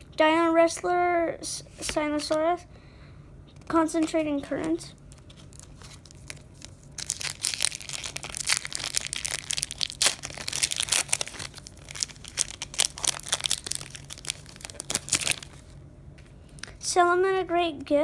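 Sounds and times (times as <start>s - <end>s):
foil wrapper crinkling and tearing: 5.1s - 15.7s.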